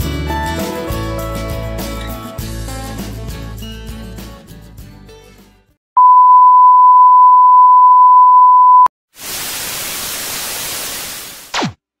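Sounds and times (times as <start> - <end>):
test-tone beep: 6.0 - 8.9
tv static hiss: 9.2 - 11.5.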